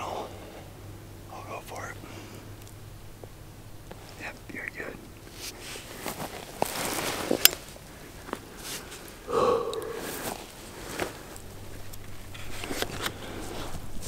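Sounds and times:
rustling in dry grass: 3.8s - 9.3s, 9.9s - 14.0s.

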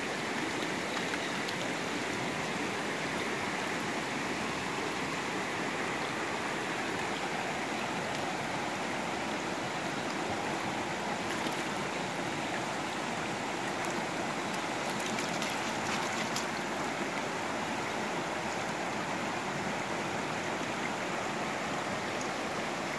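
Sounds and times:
creek rushing over stones: 0.0s - 22.9s.

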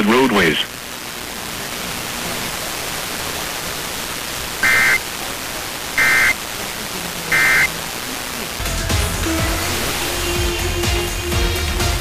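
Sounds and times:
radio static hiss: 0.0s - 11.2s
two-tone data bursts: 3.5s - 8.0s.

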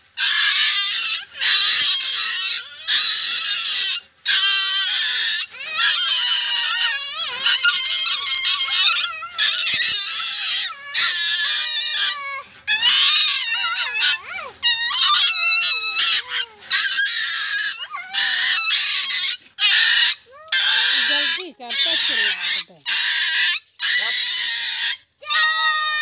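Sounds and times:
puppy crying and yelping: 0.1s - 26.0s.

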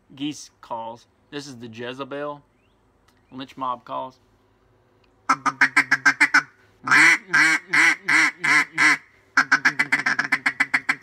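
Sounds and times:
duck call quacks: 5.3s - 11.0s.

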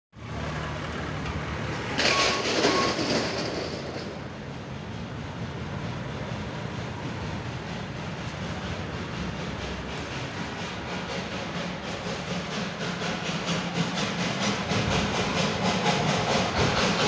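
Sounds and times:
hiss: 6.0s - 17.0s.

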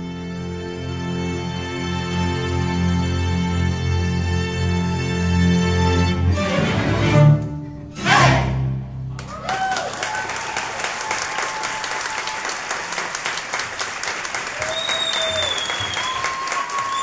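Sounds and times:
string orchestra playing: 0.0s - 9.3s
audience applause: 9.2s - 17.0s
audience whooping: 9.2s - 17.0s.

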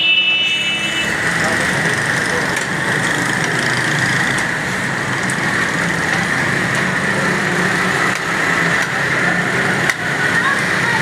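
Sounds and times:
loud mechanical drone: 0.0s - 10.4s.

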